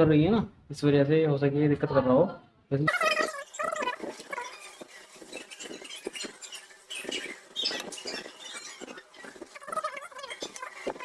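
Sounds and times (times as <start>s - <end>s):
small scratching and clicking: 3.0s - 11.0s.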